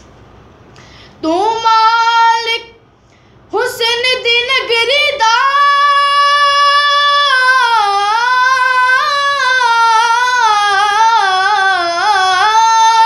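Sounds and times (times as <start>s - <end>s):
boy singing unaccompanied: 1.2s - 2.8s, 3.5s - 13.0s.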